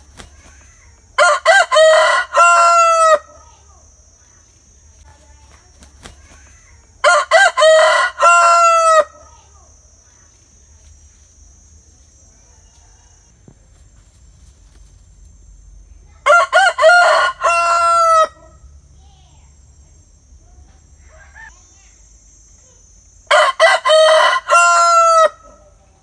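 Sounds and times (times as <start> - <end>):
rooster crowing: 1.2 - 3.4, 7.0 - 9.3, 12.4 - 13.4, 16.2 - 18.7, 23.3 - 25.8.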